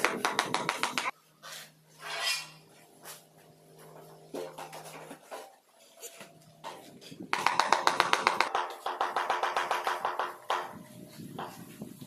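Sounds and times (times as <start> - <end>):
trowel scraping tile: 1.0 - 3.2.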